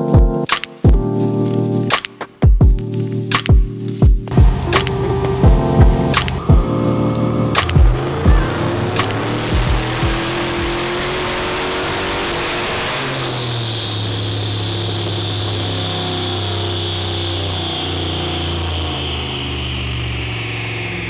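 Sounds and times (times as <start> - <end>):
engine running at full power: 4.3 - 21.0
high whine falling in pitch: 4.3 - 21.0.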